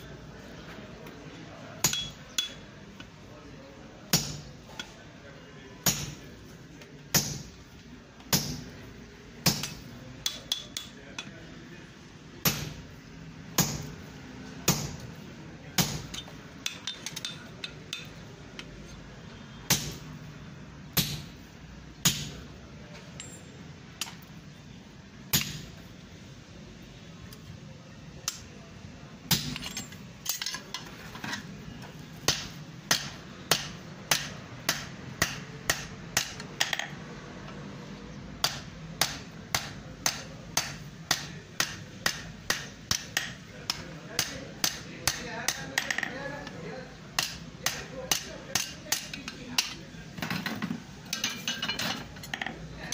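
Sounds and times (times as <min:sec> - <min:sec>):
hammer striking hot iron on anvil: 0:01.8 - 0:02.6, 0:04.1 - 0:04.5, 0:05.8 - 0:06.2, 0:07.1 - 0:07.6, 0:08.3 - 0:08.7, 0:09.4 - 0:11.0, 0:12.4 - 0:12.8, 0:13.6 - 0:14.0, 0:14.7 - 0:15.0, 0:15.8 - 0:18.1, 0:19.7 - 0:20.0, 0:21.0 - 0:21.3, 0:22.0 - 0:22.4, 0:25.3 - 0:25.7, 0:29.3 - 0:30.6, 0:32.3 - 0:36.8, 0:38.4 - 0:45.9, 0:47.2 - 0:49.8
light metal clinks: 0:23.1 - 0:23.6.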